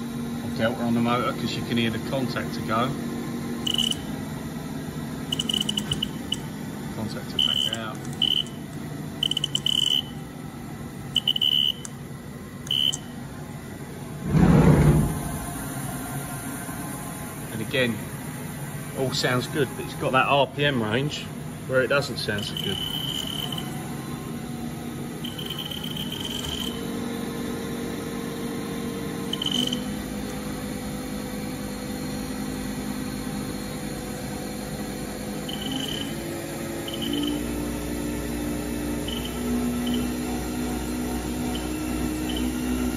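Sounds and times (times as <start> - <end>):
spindle motor humming: 0.8 - 13.8, 20.8 - 42.9
short high-pitched electronic beeps: 3.7 - 4.1, 5.3 - 6.5, 7.4 - 8.6, 9.2 - 10.2, 11.2 - 11.9, 12.7 - 13.1, 22.4 - 23.7, 25.2 - 26.8, 29.4 - 29.8, 35.5 - 36.2, 36.9 - 37.4, 39.1 - 40.1, 41.6 - 42.6.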